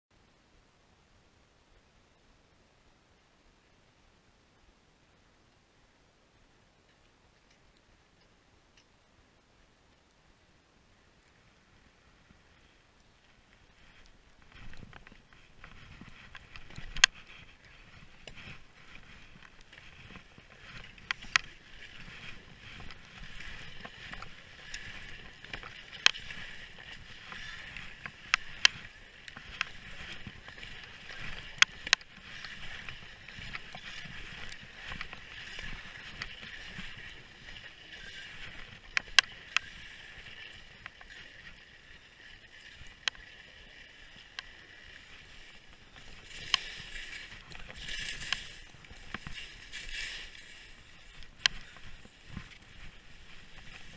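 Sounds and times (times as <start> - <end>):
skis sliding over snow: 11.2 - 53.9.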